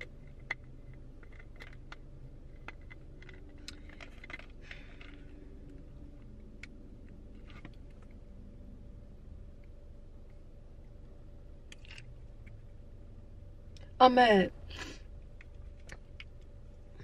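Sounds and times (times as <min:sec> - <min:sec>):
small clicks and handling noise: 0:00.0 - 0:08.3, 0:11.6 - 0:12.8, 0:15.2 - 0:17.0
steady low hum: 0:00.0 - 0:17.0.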